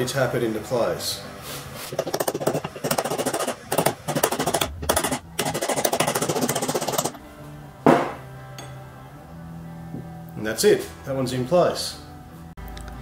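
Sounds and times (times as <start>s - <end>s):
hammer knock: 7.9s - 8.2s.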